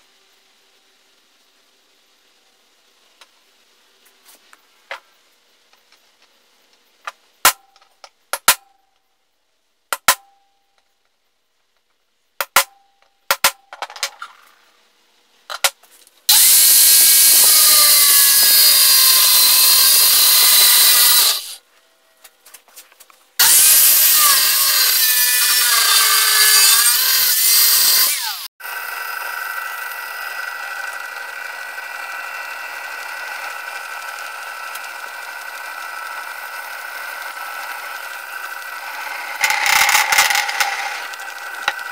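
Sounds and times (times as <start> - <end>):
angle grinder cutting steel: 16.3 - 21.6, 23.4 - 41.9
power drill running: 16.3 - 21.6, 23.4 - 41.9.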